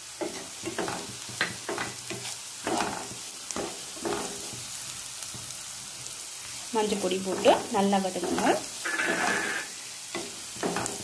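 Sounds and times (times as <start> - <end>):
onions sizzling in oil: 0.0 - 11.0
spatula scraping a pan: 0.2 - 4.6, 7.2 - 11.0.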